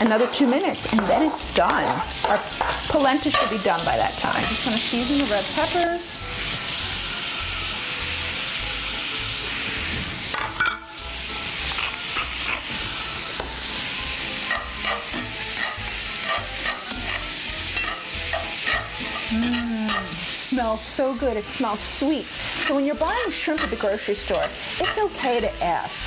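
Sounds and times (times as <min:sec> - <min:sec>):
metal tongs clicking and scraping pan: 0:00.0 - 0:05.4, 0:14.4 - 0:20.3, 0:22.3 - 0:25.6
food sizzling in a skillet: 0:00.0 - 0:26.0.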